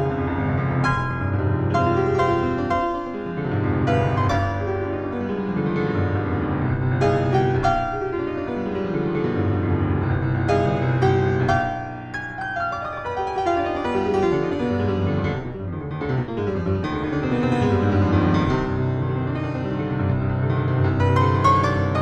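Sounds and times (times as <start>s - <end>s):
grand piano playing: 0.0s - 22.0s.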